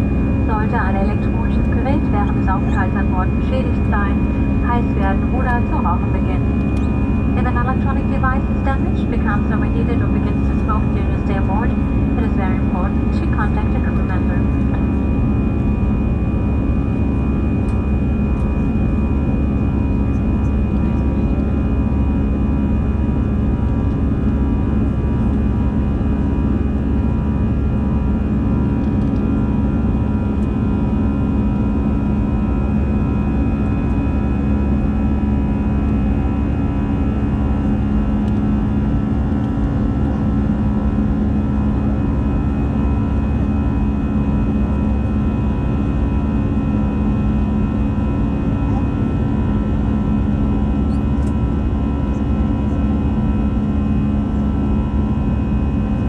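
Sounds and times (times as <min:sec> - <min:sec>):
airliner cabin engine drone: 0:00.0 - 0:56.0.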